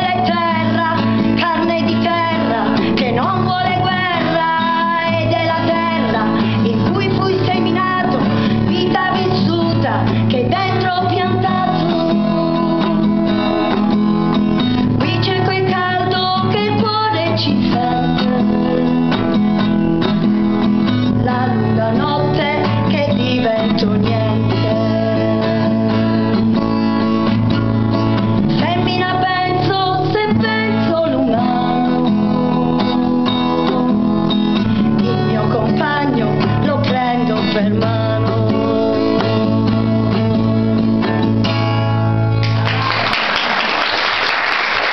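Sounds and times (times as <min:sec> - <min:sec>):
woman singing a ballad: 0:00.0 - 0:19.4, 0:20.9 - 0:27.0, 0:28.5 - 0:41.3
strummed acoustic guitar: 0:00.0 - 0:42.9
applause: 0:42.4 - 0:44.9.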